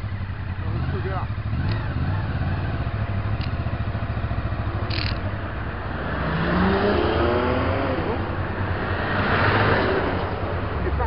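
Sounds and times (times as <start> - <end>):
motorcycle engine running: 0.0 - 6.0
vehicle accelerating: 0.0 - 11.0.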